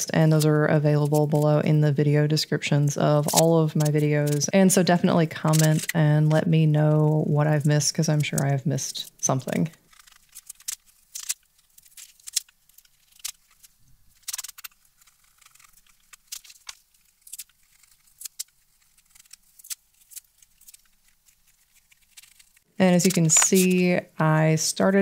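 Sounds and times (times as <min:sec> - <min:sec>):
knife scraping paper: 0:09.7 - 0:23.6.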